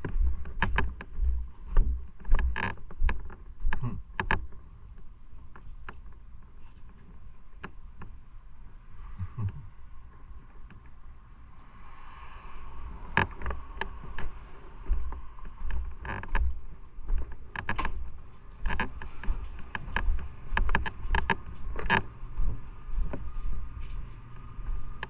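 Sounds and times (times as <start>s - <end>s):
footsteps on wooden deck: 0.0s - 4.5s, 13.2s - 25.0s
low rumble: 0.0s - 5.4s, 8.3s - 25.0s
sharp clicks and knocks: 0.0s - 8.2s, 13.1s - 22.1s.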